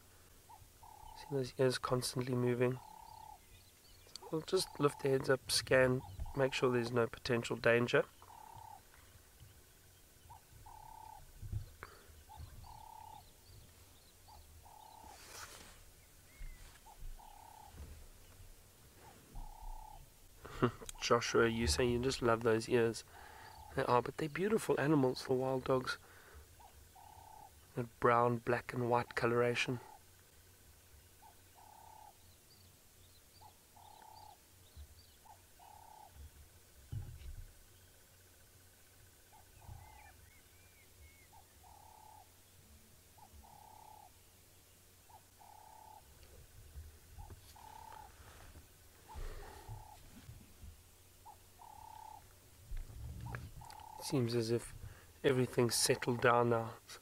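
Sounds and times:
small birds chirping: 0.0 - 57.0
dove cooing: 0.5 - 1.4, 2.4 - 3.4, 4.2 - 6.6, 8.2 - 8.9, 10.2 - 22.3, 25.9 - 27.7, 31.2 - 32.2, 33.4 - 34.4, 35.0 - 37.3, 39.2 - 40.4, 41.0 - 42.4, 43.2 - 44.2, 45.0 - 50.3, 51.2 - 55.0
faint high bird chirps: 0.5 - 1.4, 8.0 - 20.1, 31.2 - 46.4.

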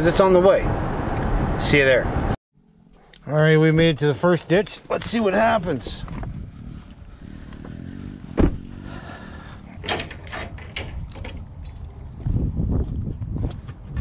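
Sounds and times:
truck door slamming: 8.4 - 8.7.

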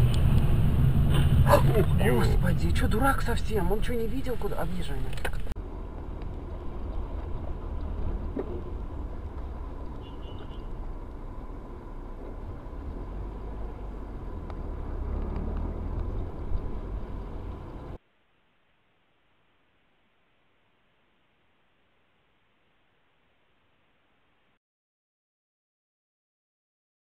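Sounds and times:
car engine and tyre rumble: 0.0 - 18.0.

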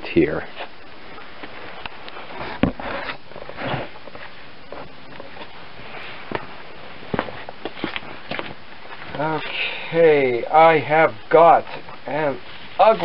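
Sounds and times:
footsteps close by: 0.5 - 9.4.

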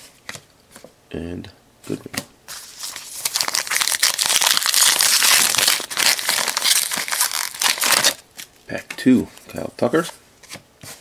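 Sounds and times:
foil wrapper crinkling and tearing: 2.5 - 8.2.

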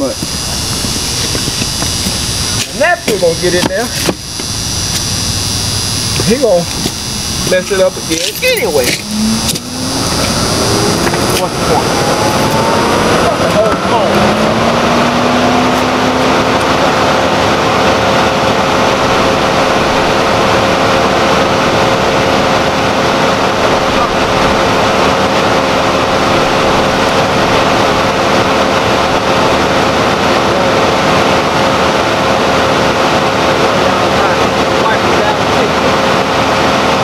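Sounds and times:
motor drone: 0.0 - 37.0.

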